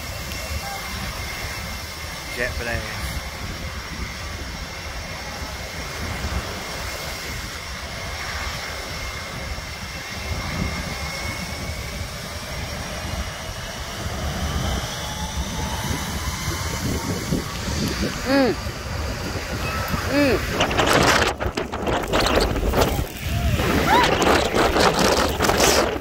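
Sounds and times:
faint rising whine: 0:00.0 - 0:26.0
faint thin engine whine: 0:00.0 - 0:26.0
heavy low rumble buffeting microphone: 0:00.0 - 0:26.0
jet blast rush: 0:00.0 - 0:26.0.

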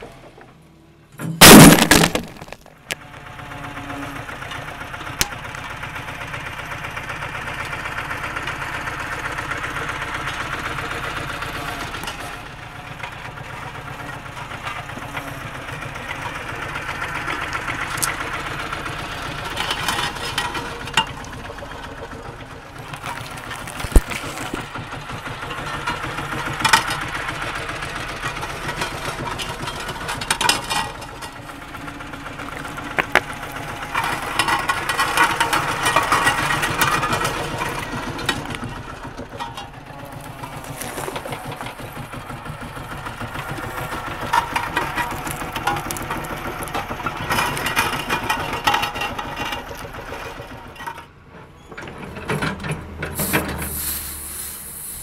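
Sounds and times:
road roller engine running: 0:00.0 - 0:55.0
objects cracking under drums: 0:01.4 - 0:03.0, 0:22.8 - 0:24.8, 0:32.5 - 0:38.8, 0:40.1 - 0:42.1, 0:43.4 - 0:49.9.

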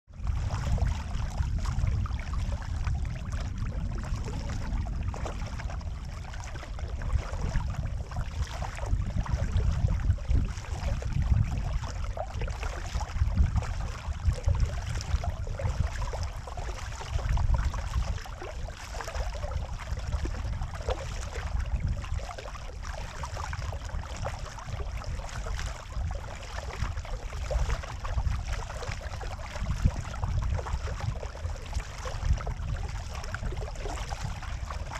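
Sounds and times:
low rumble: 0:00.0 - 0:34.9
water splashing along kayak hull: 0:00.1 - 0:34.9.

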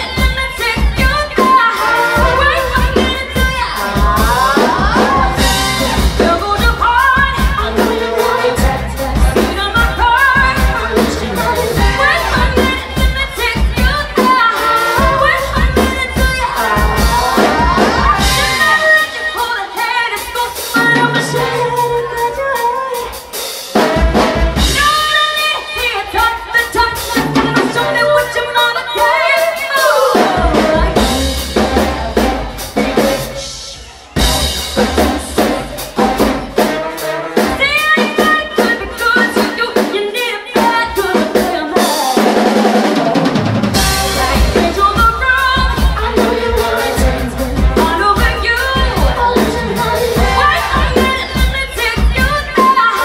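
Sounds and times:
woman singing: 0:00.0 - 0:24.0, 0:24.6 - 0:33.5, 0:37.4 - 0:53.0
drum kit: 0:00.0 - 0:53.0
electric bass: 0:02.2 - 0:14.2, 0:15.0 - 0:18.8, 0:30.4 - 0:33.6, 0:43.7 - 0:52.5.

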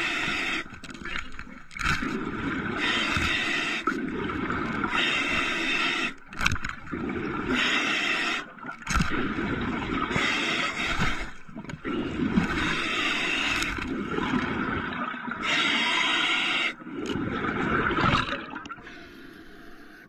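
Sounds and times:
diver breathing through regulator: 0:00.0 - 0:00.7, 0:02.5 - 0:06.5, 0:07.2 - 0:08.6, 0:10.1 - 0:14.0, 0:15.4 - 0:17.5
air bubbling underwater: 0:16.8 - 0:18.8.

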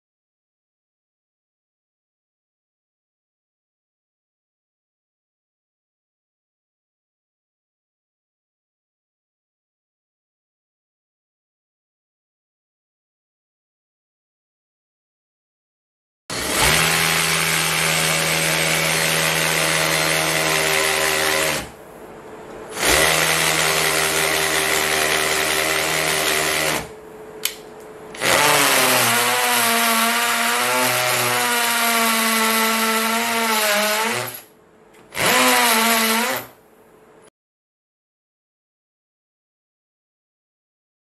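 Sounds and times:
hammer drill drilling into brick: 0:16.3 - 0:21.8, 0:22.7 - 0:26.9, 0:28.2 - 0:34.5, 0:35.1 - 0:36.6.

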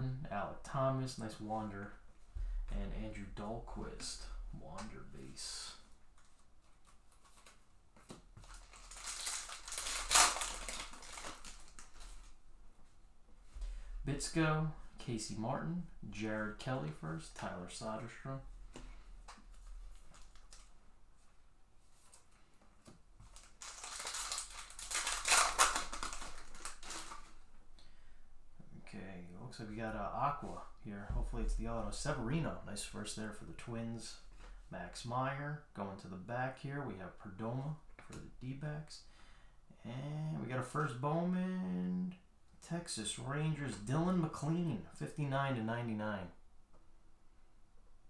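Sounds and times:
foil wrapper crinkling: 0:08.4 - 0:12.4, 0:23.3 - 0:27.4.

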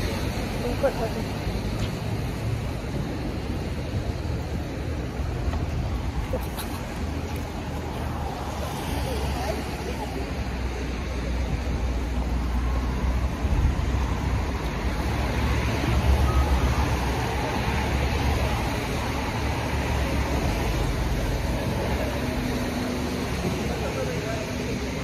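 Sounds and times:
low rumble of traffic: 0:00.0 - 0:25.0.

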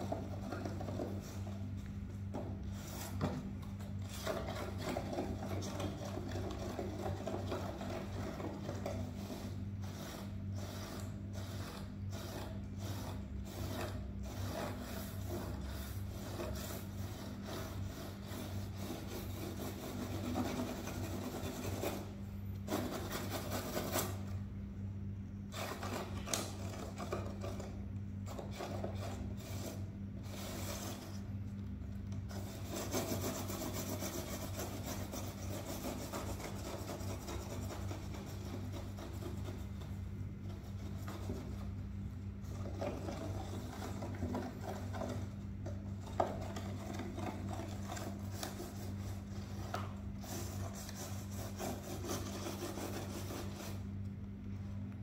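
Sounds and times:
steady low hum: 0:00.0 - 0:55.0
fingernails scratching cardboard: 0:04.0 - 0:24.3, 0:32.3 - 0:39.9, 0:46.0 - 0:53.9.

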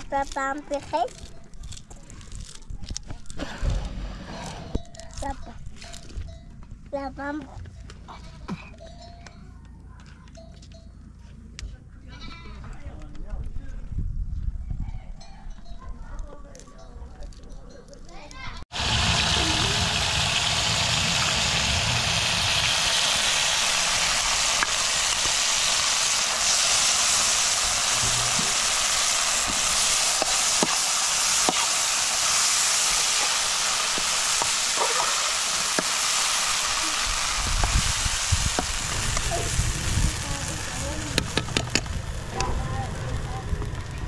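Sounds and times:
berries sizzling in oil: 0:18.7 - 0:44.0.

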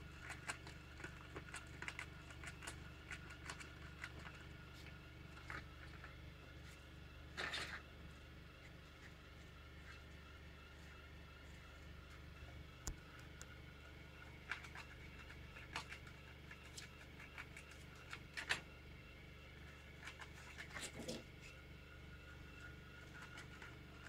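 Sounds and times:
low steady hum: 0:00.0 - 0:24.0
claws scratching on windowsill: 0:19.9 - 0:21.6.

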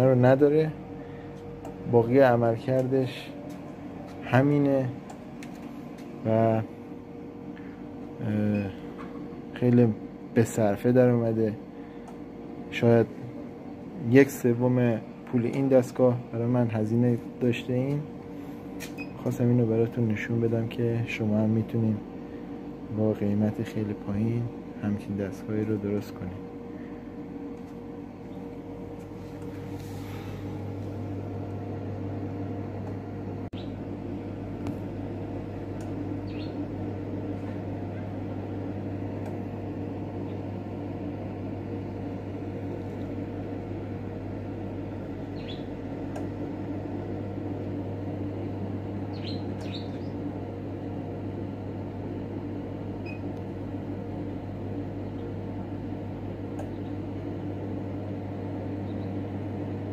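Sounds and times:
incubator electrical hum: 0:00.0 - 0:59.9
hatchling peeps: 0:36.2 - 0:36.6, 0:45.3 - 0:45.7, 0:49.1 - 0:50.2.

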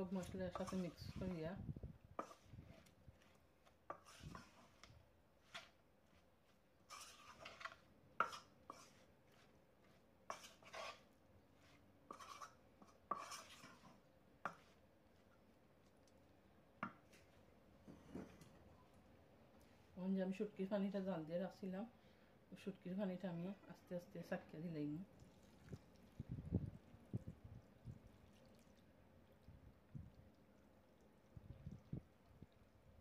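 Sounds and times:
wooden spatula scraping pan: 0:00.0 - 0:01.4, 0:02.2 - 0:14.8.

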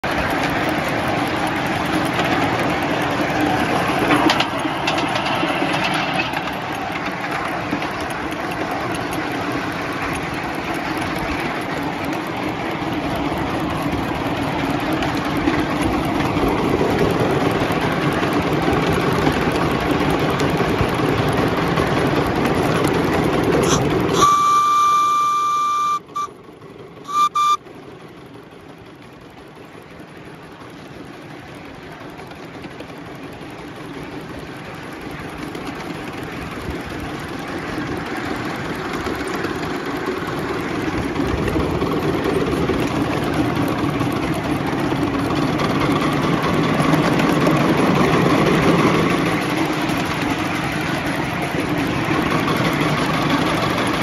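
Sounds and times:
steam locomotive running: 0:00.0 - 0:54.0
steam whistle blowing: 0:23.6 - 0:26.3, 0:27.1 - 0:27.6.

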